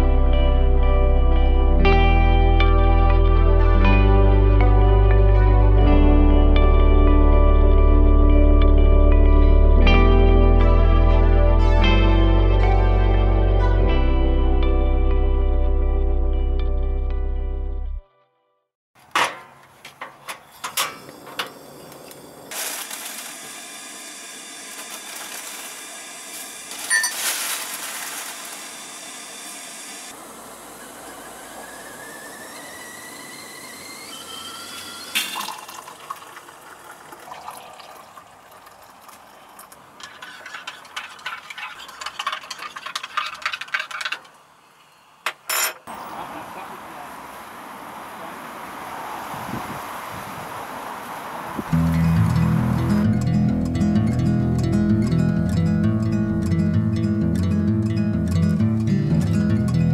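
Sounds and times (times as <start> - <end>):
background music: 0.0 - 18.2, 51.8 - 59.9
gas stove hissing: 20.4 - 26.9, 27.6 - 35.4
water pouring into a mug: 35.0 - 44.1.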